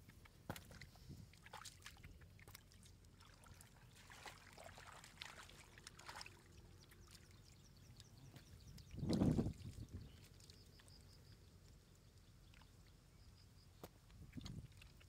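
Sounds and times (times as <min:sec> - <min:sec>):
fish splashing in muddy puddle: 0:00.0 - 0:07.3, 0:13.8 - 0:15.0.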